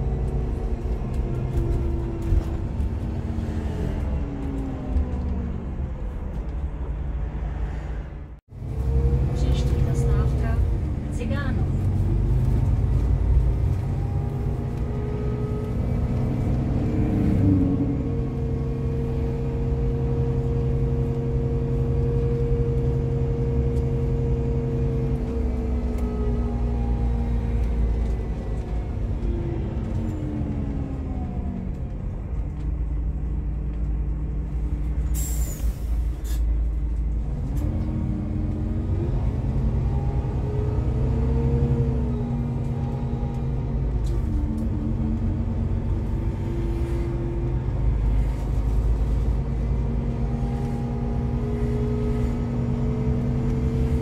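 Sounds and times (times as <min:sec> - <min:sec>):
bus diesel engine: 0:00.0 - 0:54.0
air brakes hissing: 0:35.1 - 0:36.5.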